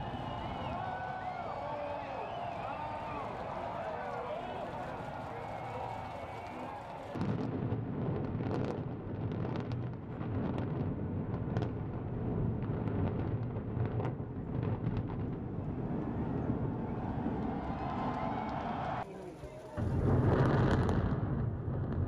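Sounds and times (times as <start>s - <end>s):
deep rumble of building collapsing: 7.2s - 19.0s.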